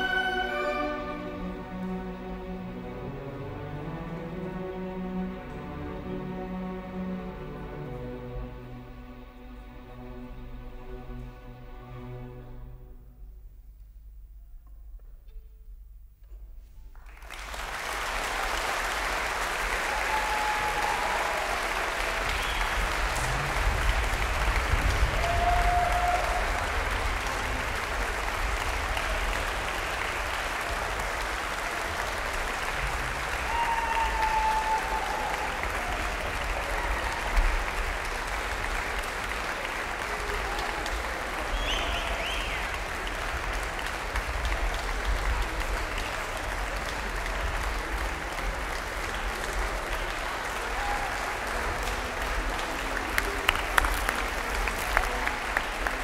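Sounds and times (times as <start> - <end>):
audience applauding: 0.0 - 2.0, 16.9 - 56.0
orchestral music: 0.0 - 13.3, 20.8 - 56.0.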